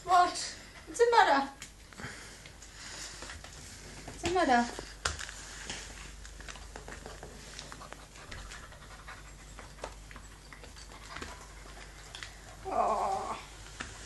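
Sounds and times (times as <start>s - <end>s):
faint clicks and rustles: 0.6s - 14.0s
puppy panting: 7.0s - 12.6s.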